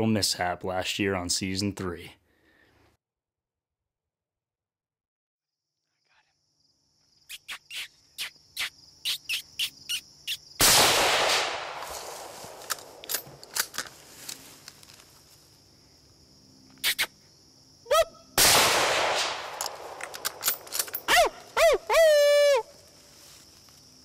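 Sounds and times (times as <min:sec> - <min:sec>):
high insect drone: 0:05.5 - 0:10.6, 0:11.6 - 0:18.4, 0:19.3 - 0:24.0
rifle shot with echo: 0:10.6 - 0:13.0, 0:18.4 - 0:20.6.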